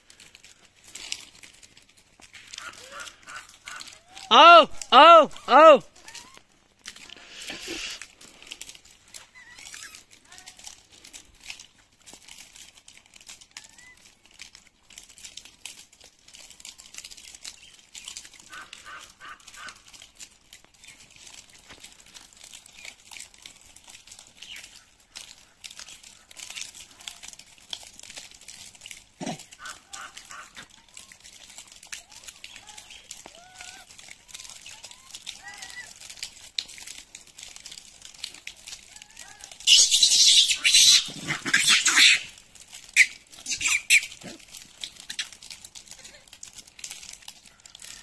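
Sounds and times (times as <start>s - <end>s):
peanut shells cracking: 0.1s - 4.2s, 5.9s - 48.0s
monkeys high squeaky calls: 6.0s - 6.4s, 9.2s - 10.5s, 13.5s - 14.1s, 32.0s - 36.0s, 38.9s - 44.4s, 45.0s - 46.2s.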